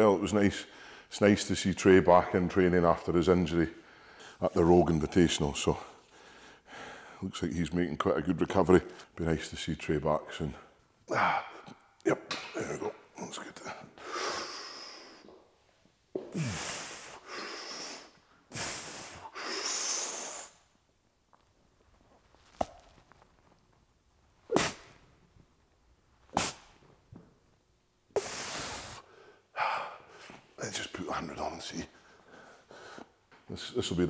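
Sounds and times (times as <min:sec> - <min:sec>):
person breathing hard: 0:03.8 - 0:04.4, 0:06.1 - 0:07.2, 0:16.3 - 0:20.6, 0:32.0 - 0:33.2
short sharp exhalations: 0:28.2 - 0:30.4.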